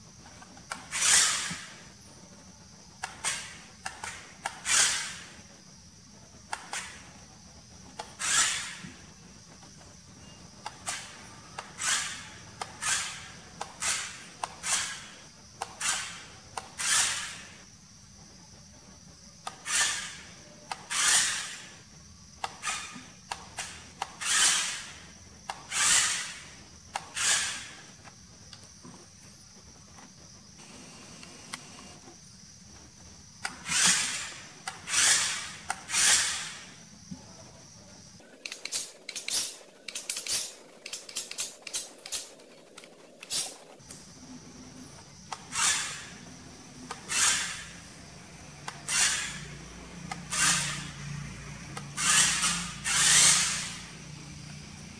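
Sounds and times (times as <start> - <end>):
toy truck motor whirring: 0.3 - 2.0, 3.0 - 5.5, 6.4 - 9.9, 10.5 - 17.7, 19.4 - 28.1, 33.4 - 36.8, 38.4 - 43.8, 45.3 - 54.9.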